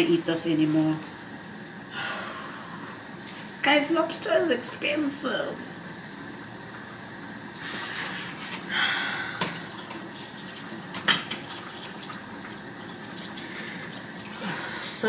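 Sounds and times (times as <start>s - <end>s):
tap running into sink: 9.4s - 12.1s.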